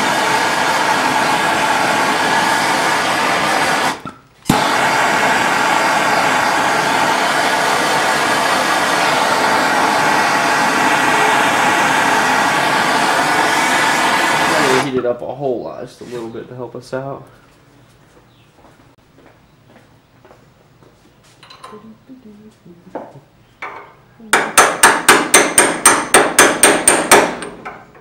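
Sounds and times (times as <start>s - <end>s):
gas torch hissing: 0.0s - 15.0s.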